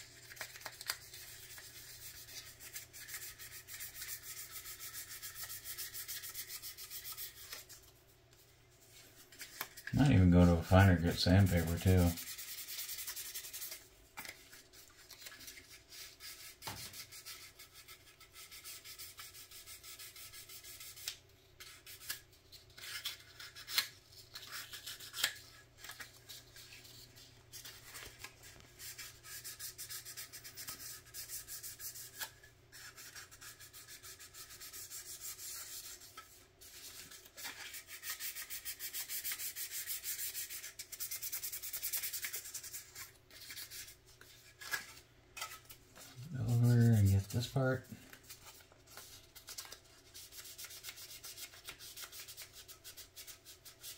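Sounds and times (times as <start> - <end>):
sandpaper rubbing on plastic: 0.3 - 7.7, 9.4 - 13.8, 15.2 - 22.2, 28.8 - 44.0, 46.2 - 47.9, 50.1 - 53.9.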